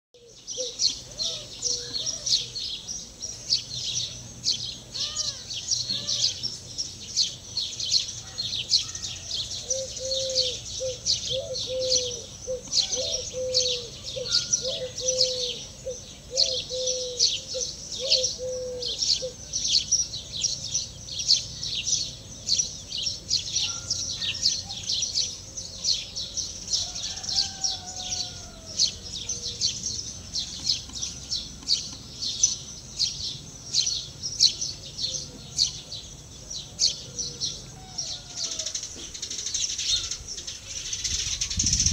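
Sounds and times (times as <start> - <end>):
small birds chirping: 0.2 - 41.9
low bird call: 8.0 - 19.5.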